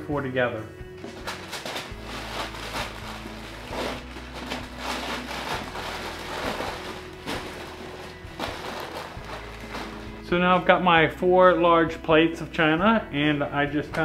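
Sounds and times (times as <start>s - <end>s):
packing paper rustling and crinkling: 1.0s - 10.3s.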